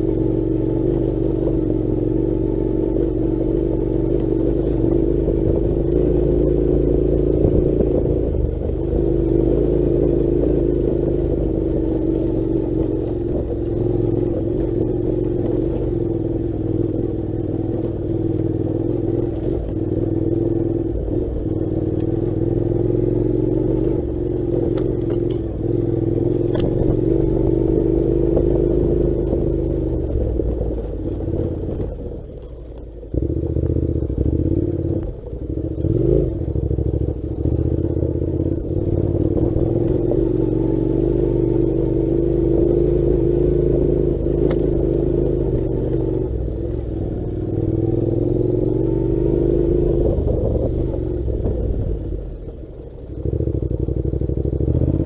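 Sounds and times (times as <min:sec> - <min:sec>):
motorcycle engine at low revs: 0:00.0 - 0:55.0.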